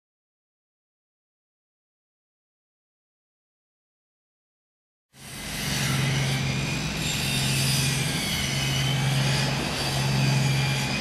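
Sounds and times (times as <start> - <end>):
ship engines idling: 5.4 - 11.0.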